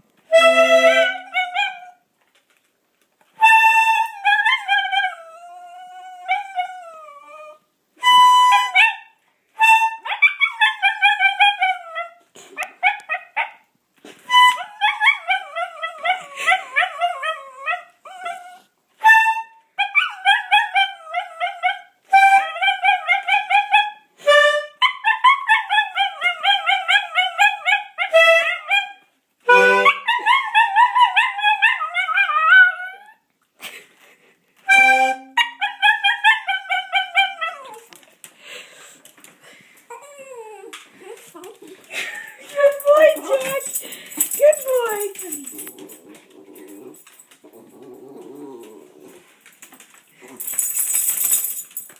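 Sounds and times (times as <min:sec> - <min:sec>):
accordion notes: 0:00.3 - 0:01.3, 0:24.2 - 0:24.8, 0:29.5 - 0:30.0, 0:34.7 - 0:35.4
dog howling and whining: 0:04.0 - 0:07.7, 0:14.5 - 0:18.7, 0:25.0 - 0:29.0, 0:30.0 - 0:33.3, 0:35.6 - 0:37.9.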